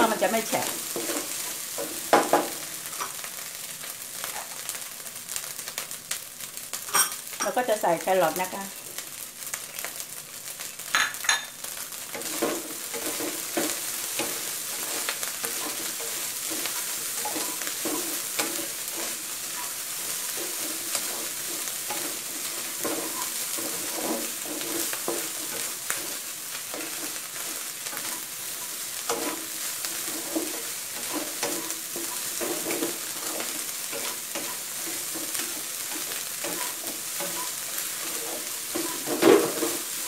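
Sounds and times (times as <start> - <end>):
spatula scraping a wok: 0.0 - 3.4, 12.0 - 40.0
rice sizzling in a wok: 0.0 - 40.0
spatula knocking on wok: 1.8 - 2.6.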